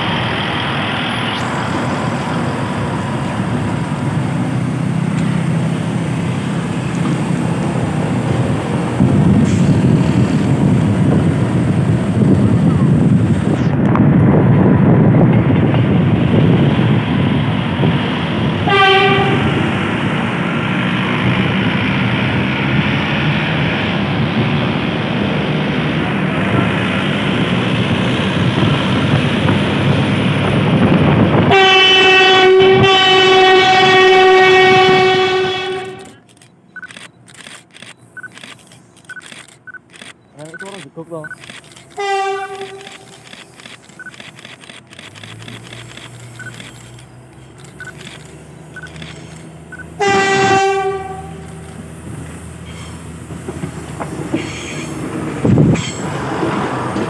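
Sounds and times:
train rumbling past: 0.0s - 37.3s, 37.9s - 57.0s
train horn blasts: 18.6s - 19.6s, 31.5s - 36.0s, 42.0s - 43.0s, 50.0s - 51.6s.

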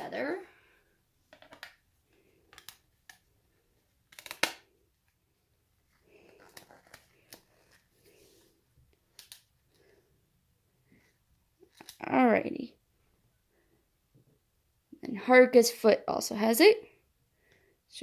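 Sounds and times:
plastic parts clicking and tapping: 1.3s - 1.8s.

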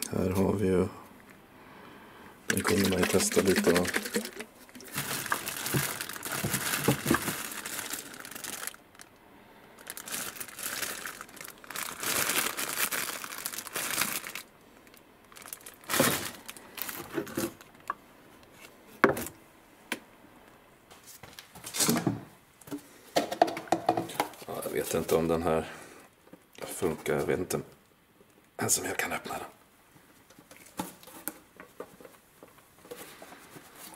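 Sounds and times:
plastic bag crinkling: 2.5s - 9.2s, 9.8s - 17.9s.

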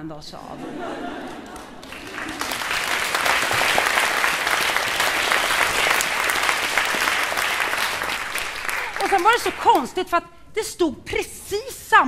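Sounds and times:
audience applauding: 1.2s - 9.9s.

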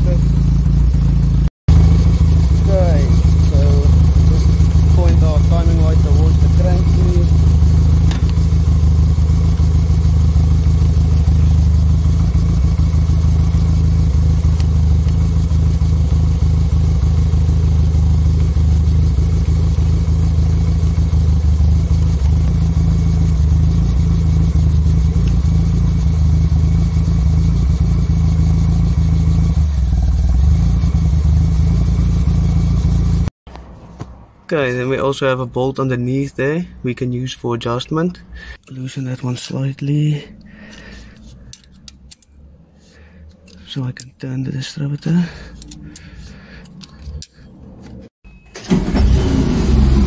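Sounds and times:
car engine idling: 0.0s - 33.7s, 39.8s - 50.0s.

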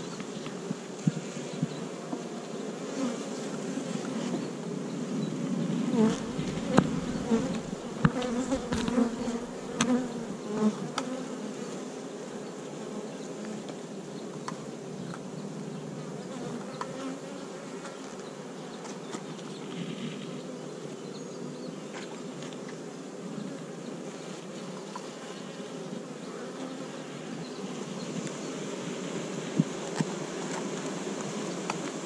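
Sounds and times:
bees buzzing: 0.0s - 14.8s, 23.1s - 32.0s.

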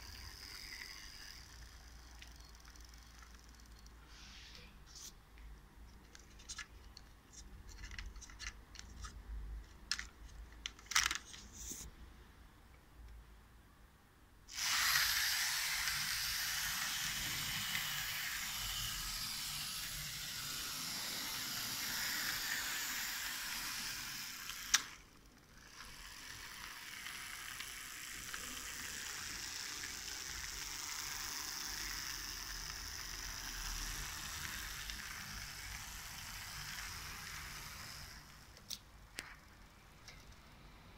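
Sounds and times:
model train whirring and rattling: 0.0s - 4.0s, 14.5s - 38.5s.

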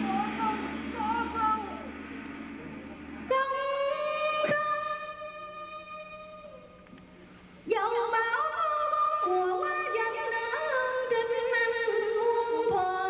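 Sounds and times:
sharp strike: 0.0s - 5.4s
theatre music held note: 0.0s - 5.6s
sliding bending notes: 0.0s - 6.2s.

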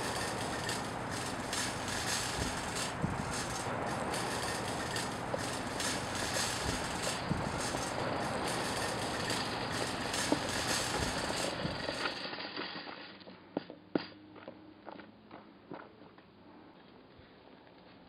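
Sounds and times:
shopping cart rattling over gravel: 0.0s - 13.1s.

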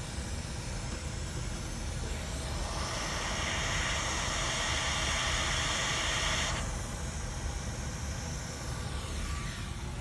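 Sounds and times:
low fan rumble: 0.0s - 10.0s
airy hiss: 2.6s - 6.6s.

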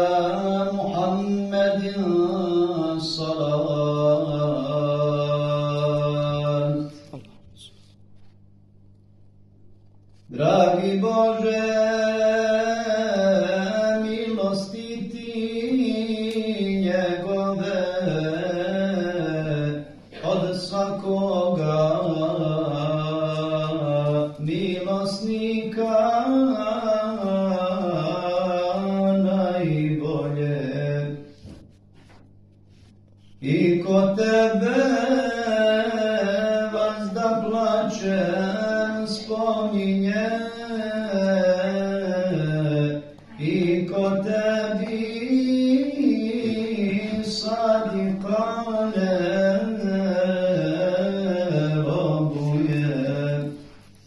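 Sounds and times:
man chanting religious recitation: 0.0s - 7.8s, 10.3s - 31.4s, 33.3s - 53.9s.

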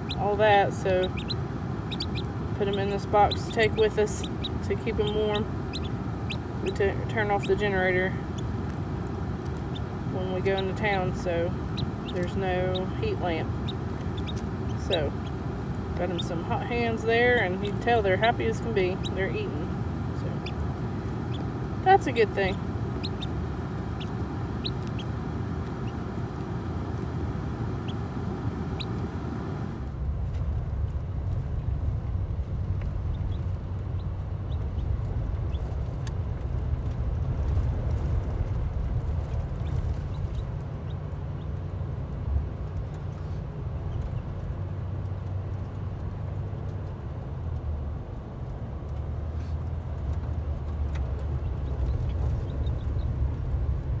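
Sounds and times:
chicks peeping: 0.0s - 29.8s, 32.7s - 37.0s, 39.0s - 41.6s, 50.9s - 53.5s
car interior engine and tyre rumble: 0.0s - 54.0s.

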